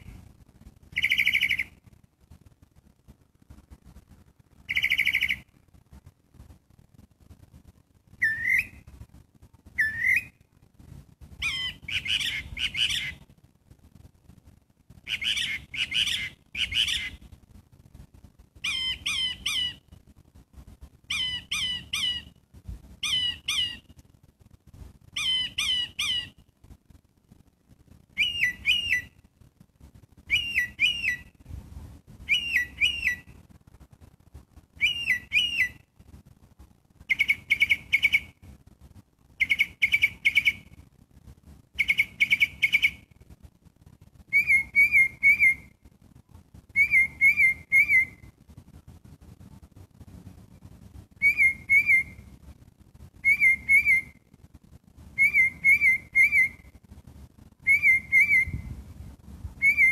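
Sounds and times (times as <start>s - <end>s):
songbird singing: 0.0s - 2.0s, 4.5s - 5.6s, 8.1s - 8.9s, 9.6s - 10.5s, 11.3s - 13.3s, 15.0s - 17.4s, 18.6s - 20.0s, 21.0s - 24.0s, 25.1s - 26.5s, 28.1s - 29.3s, 30.2s - 31.4s, 32.1s - 33.5s, 34.7s - 36.1s, 37.0s - 38.6s, 39.3s - 40.8s, 41.7s - 43.2s, 44.2s - 45.8s, 46.7s - 48.4s, 51.1s - 52.3s, 53.1s - 54.3s, 55.1s - 56.8s, 57.6s - 58.8s, 59.5s - 59.9s.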